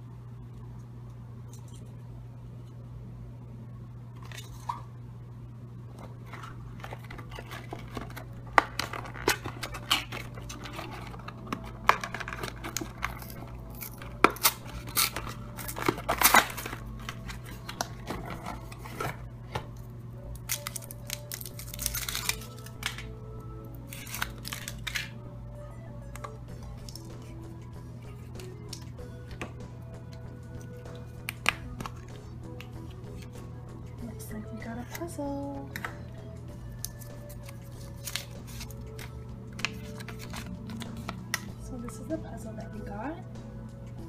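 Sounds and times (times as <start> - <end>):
steady low hum: 0.0 - 44.0
foil crinkling: 6.2 - 19.2, 20.4 - 23.1, 23.8 - 25.2, 36.8 - 41.4
cardboard box tearing: 12.0 - 19.2.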